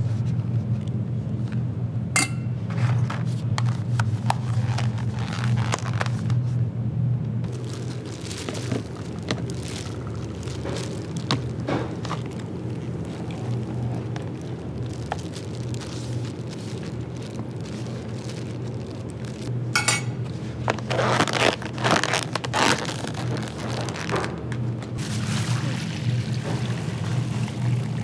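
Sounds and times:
steady low hum: 0:00.0 - 0:28.0
dishes and glassware clinking: 0:02.2 - 0:02.6, 0:19.8 - 0:20.2.

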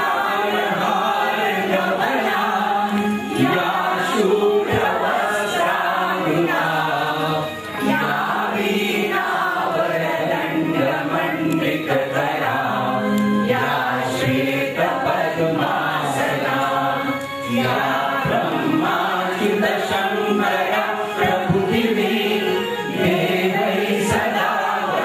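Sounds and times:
group singing a devotional prayer: 0:00.0 - 0:25.0.

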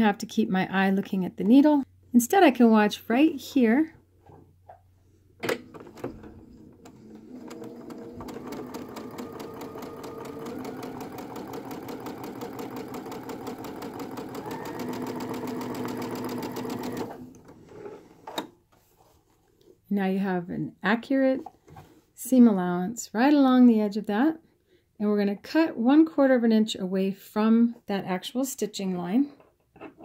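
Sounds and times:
sewing machine stitching: 0:05.7 - 0:18.4.

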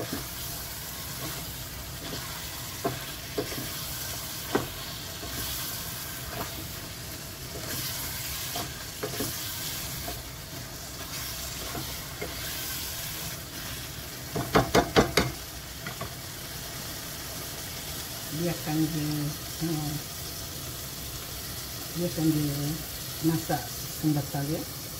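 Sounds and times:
wooden spatula stirring and scraping: 0:00.0 - 0:16.1
food sizzling in a pot: 0:00.0 - 0:24.9.

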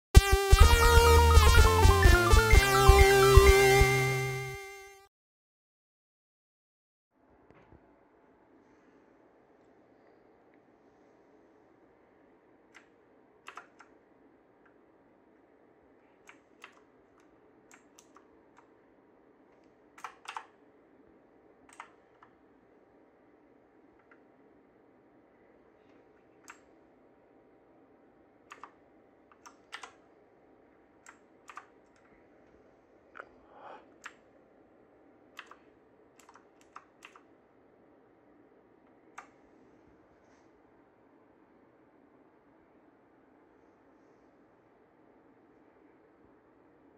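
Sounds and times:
keyboard keys clicking: 0:12.7 - 0:14.0, 0:16.2 - 0:18.7, 0:20.0 - 0:20.6, 0:21.7 - 0:22.3, 0:28.5 - 0:30.0, 0:31.0 - 0:32.1, 0:35.4 - 0:35.6, 0:36.2 - 0:37.3.

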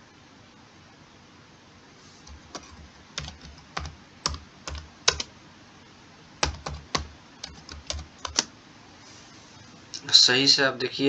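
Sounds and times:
computer keyboard typing: 0:02.3 - 0:05.3, 0:06.4 - 0:08.5.

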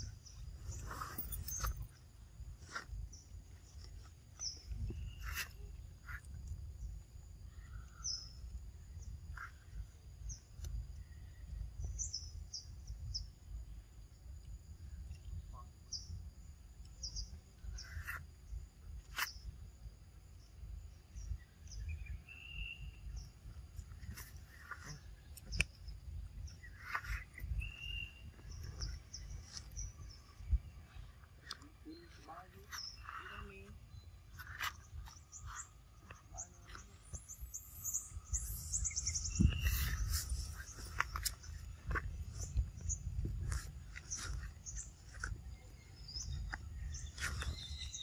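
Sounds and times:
small birds chirping: 0:00.0 - 0:48.0.

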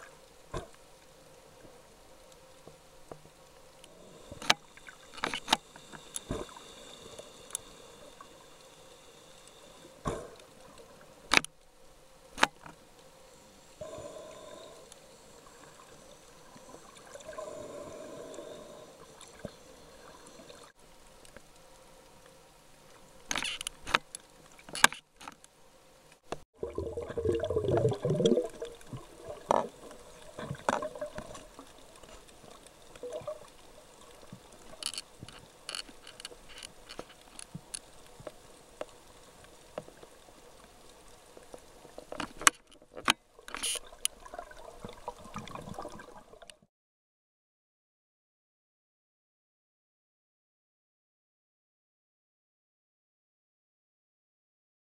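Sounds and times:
underwater gurgling and bubbling: 0:26.6 - 0:34.9, 0:43.6 - 0:46.5.

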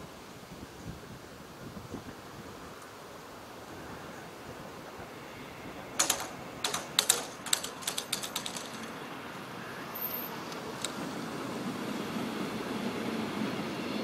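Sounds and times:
barrier mechanical clicks: 0:06.0 - 0:09.0.

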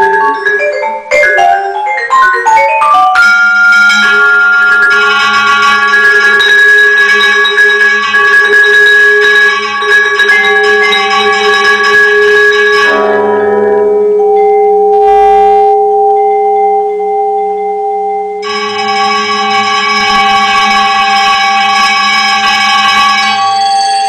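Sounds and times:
vibraphone played with mallets: 0:00.0 - 0:24.0
pre-recorded tape music: 0:12.9 - 0:17.1.

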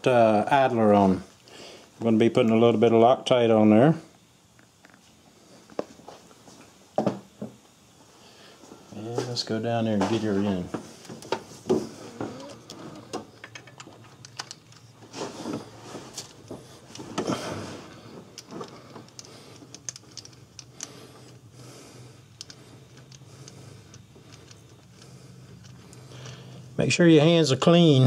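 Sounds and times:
faint steady low hum: 0:00.0 - 0:28.0
small metal clicks and scrapes: 0:18.4 - 0:21.4, 0:22.3 - 0:26.4.

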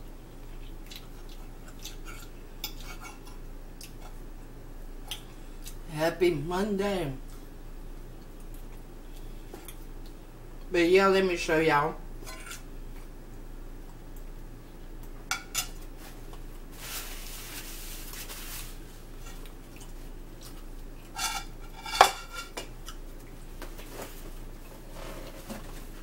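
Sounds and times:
fork clinking on ceramic plates: 0:15.3 - 0:15.8.

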